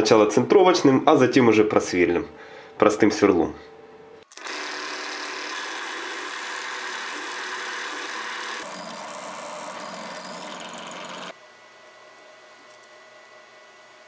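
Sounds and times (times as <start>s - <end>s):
electric drill drilling into steel: 4.3s - 11.4s.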